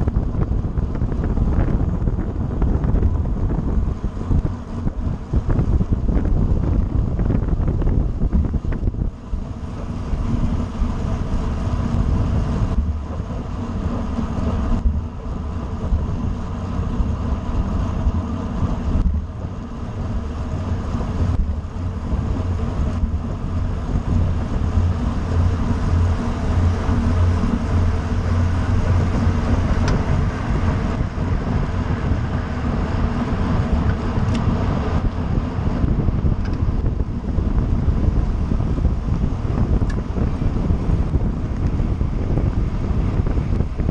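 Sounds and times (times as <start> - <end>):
wind rumble on microphone: 0.0 - 43.9.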